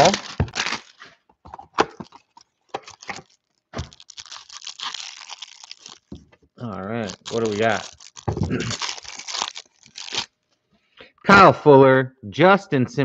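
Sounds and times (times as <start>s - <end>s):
plastic wrap crinkling and tearing: 0.0s - 10.4s.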